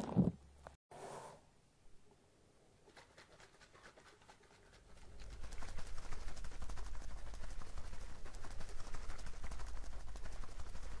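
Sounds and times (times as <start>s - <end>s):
shaving foam crackling: 3.2s - 11.0s.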